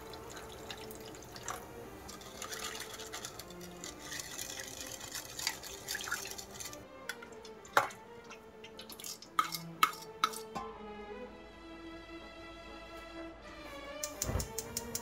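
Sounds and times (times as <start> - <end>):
running and dripping water: 0.0 - 10.4
background music: 0.0 - 15.0.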